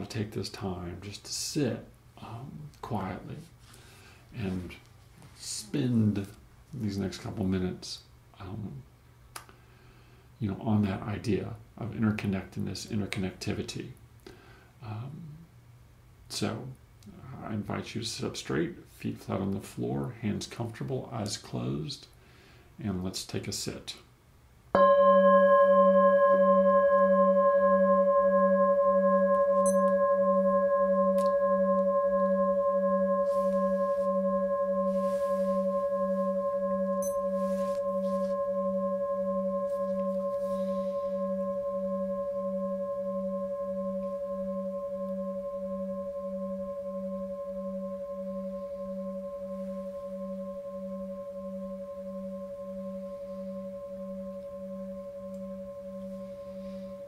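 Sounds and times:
singing bowl ringing: 0:24.8 - 0:57.0.

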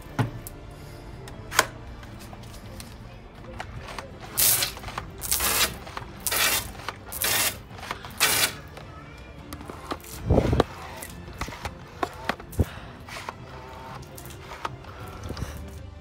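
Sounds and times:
background music: 0:00.0 - 0:16.0
water blaster squirting spurts: 0:03.9 - 0:08.7.

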